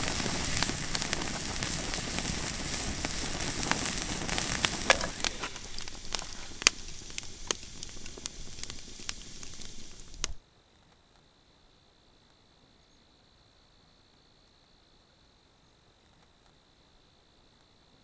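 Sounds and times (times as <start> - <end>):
campfire crackling: 0.0 - 10.4
steaks sizzling on a grill: 0.0 - 10.4.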